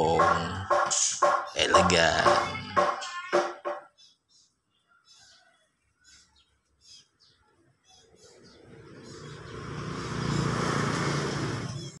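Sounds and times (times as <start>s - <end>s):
motor vehicle approaching: 8.1s - 12.0s.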